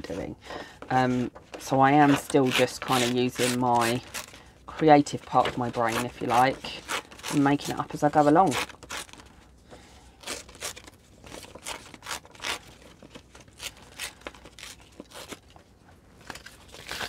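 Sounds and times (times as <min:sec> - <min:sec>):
paper tearing: 0:02.0 - 0:04.4, 0:05.3 - 0:09.3, 0:10.2 - 0:15.5, 0:16.3 - 0:17.0
paper crinkling: 0:10.2 - 0:17.0.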